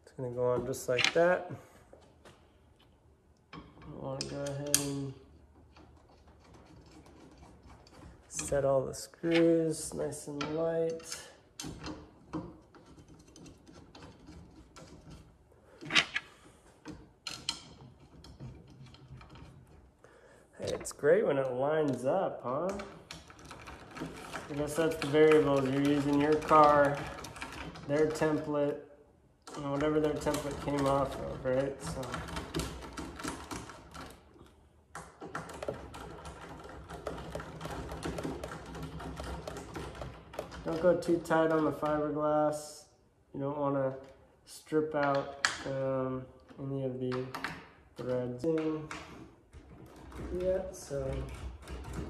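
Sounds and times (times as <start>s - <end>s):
small metallic clicks and rattles: 3.4s - 19.9s.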